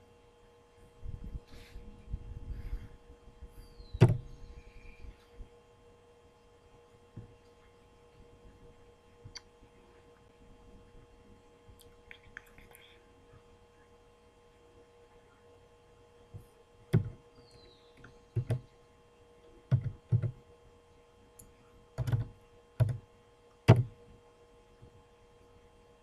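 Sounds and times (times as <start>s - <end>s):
faint electrical whine: 0.0s - 26.0s
sharp knocks on desk: 23.7s - 23.9s.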